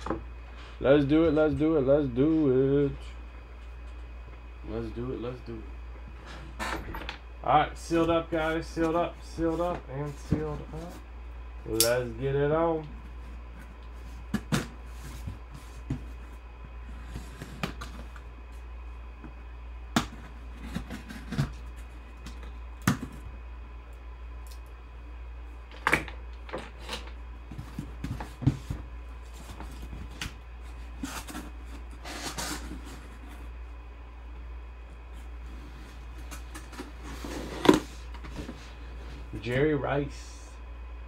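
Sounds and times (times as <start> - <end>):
steady low hum: 0.0 - 41.0
taps and knocks on cardboard box: 27.5 - 28.9
cardboard scraping: 27.5 - 33.6, 35.2 - 39.3.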